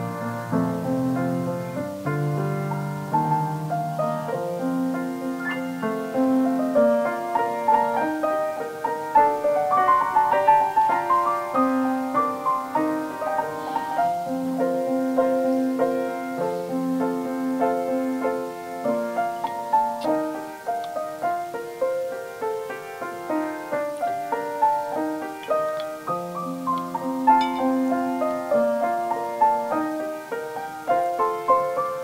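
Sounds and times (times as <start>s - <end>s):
keyboard instrumental piece: 5.2s - 14.5s, 25.4s - 28.6s.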